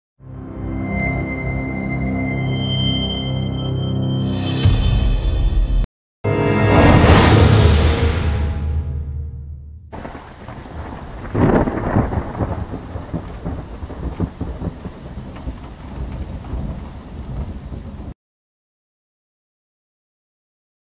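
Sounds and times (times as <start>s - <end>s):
rain falling: 9.9s - 18.2s
thunder rolling: 9.9s - 18.2s.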